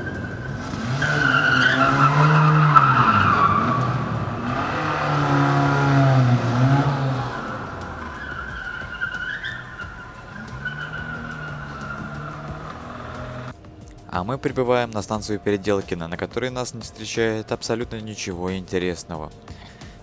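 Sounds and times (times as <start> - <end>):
car engine revving hard: 0.0 - 13.5
tyres squealing: 0.0 - 13.5.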